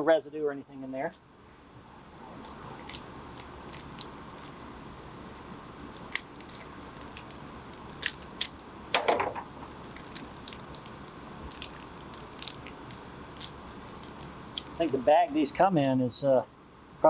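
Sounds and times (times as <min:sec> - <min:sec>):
crinkly rustle: 0:05.9 - 0:08.6, 0:09.7 - 0:15.1.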